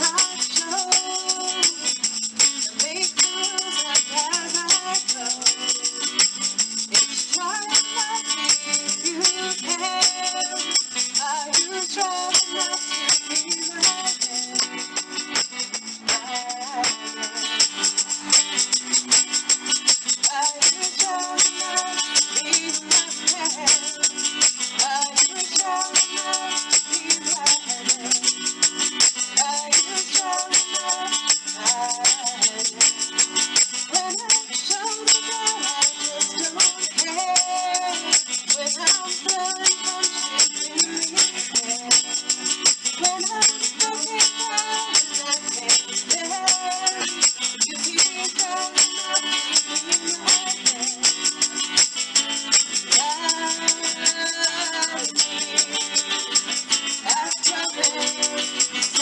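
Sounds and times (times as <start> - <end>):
woman singing: 0.0 - 18.4, 19.9 - 51.8, 52.6 - 59.0
plastic shaker rhythm: 0.0 - 59.0
strummed acoustic guitar: 0.0 - 59.0.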